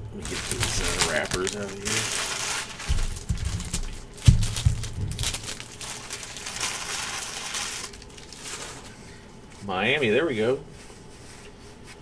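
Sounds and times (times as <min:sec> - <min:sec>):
cards rustling on a table: 0:00.3 - 0:04.0
dull knocks: 0:02.9 - 0:05.4.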